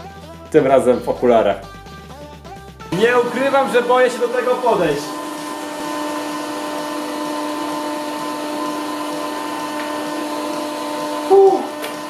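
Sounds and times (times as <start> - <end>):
hydraulic pump motor humming: 2.9 - 12.0.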